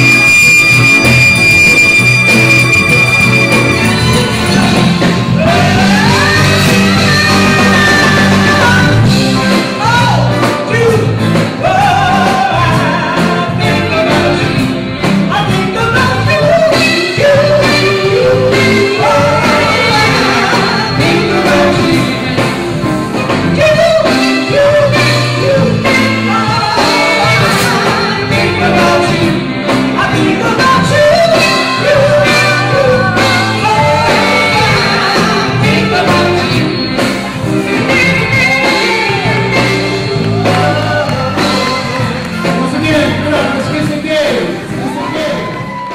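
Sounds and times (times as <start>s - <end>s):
band with bass and keyboard: 0.0s - 45.9s
woman singing into microphone: 5.5s - 9.0s, 37.8s - 41.9s.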